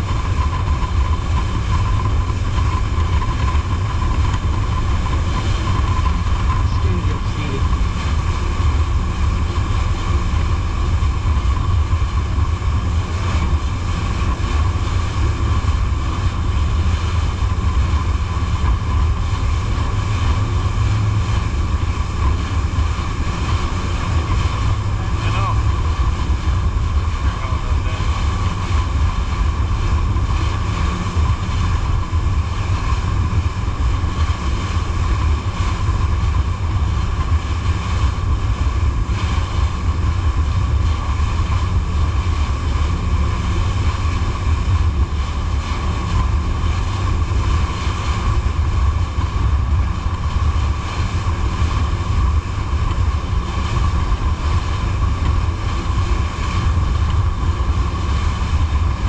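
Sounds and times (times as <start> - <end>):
boat engine running: 0.0 - 59.0
water along hull: 0.0 - 59.0
wind on microphone: 0.0 - 59.0.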